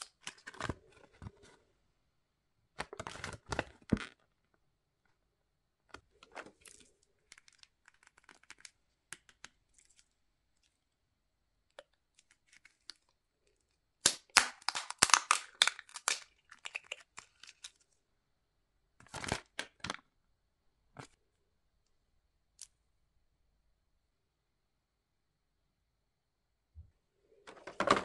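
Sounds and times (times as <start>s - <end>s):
wrapper crinkling and tearing: 14.3s - 17.8s.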